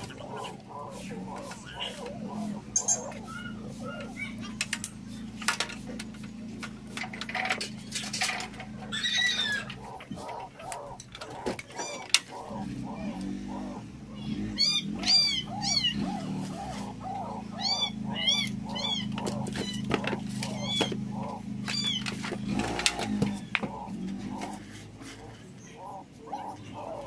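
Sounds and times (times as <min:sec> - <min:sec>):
steady low hum: 0:00.0 - 0:27.0
knocks and clicks: 0:19.1 - 0:24.6.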